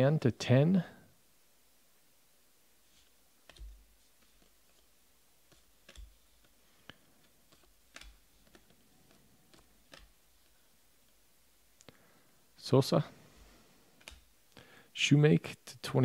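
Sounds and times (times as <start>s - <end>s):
cards being flipped clicking: 3.4s - 4.9s, 5.5s - 10.6s.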